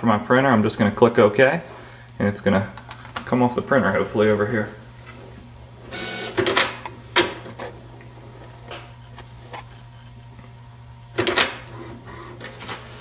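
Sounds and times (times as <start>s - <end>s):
low steady hum: 0.0s - 13.0s
printer feed mechanism whirring: 5.2s - 10.2s, 11.1s - 13.0s
printer clicks and clunks: 5.9s - 7.8s, 11.2s - 13.0s.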